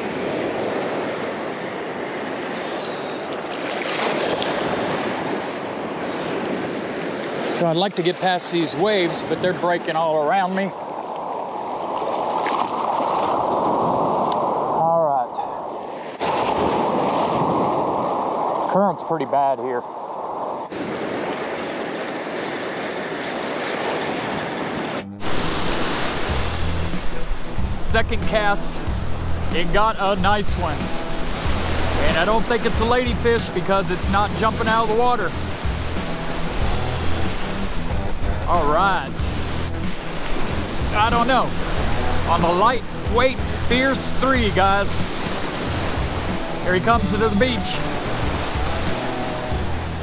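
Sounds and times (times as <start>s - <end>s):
surf waves breaking: 0.0s - 50.0s
wind on microphone: 10.8s - 14.8s, 15.6s - 18.7s, 19.8s - 29.6s.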